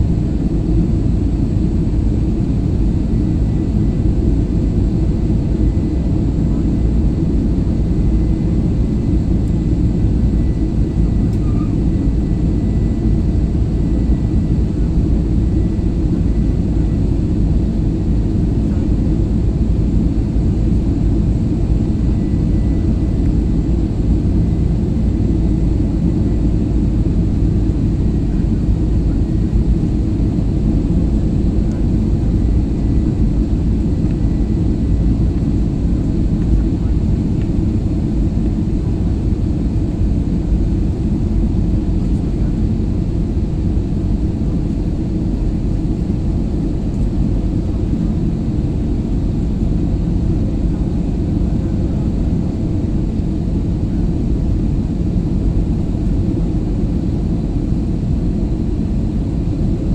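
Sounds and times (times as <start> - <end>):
jet engine and airflow roar: 0.0 - 59.9
faint high whine: 8.0 - 17.5.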